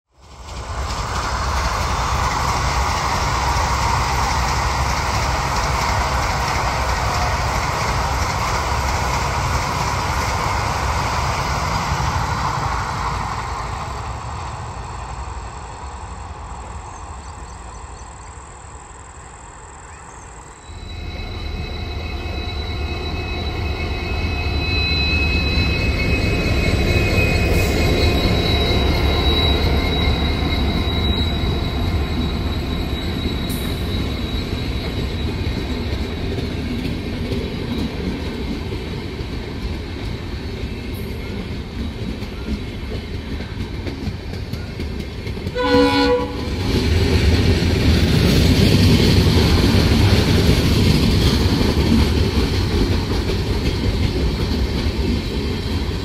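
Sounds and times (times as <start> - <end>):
electric train running past: 0.1 - 56.0
train rumble: 0.1 - 56.0
high-pitched steady tones: 20.4 - 37.4.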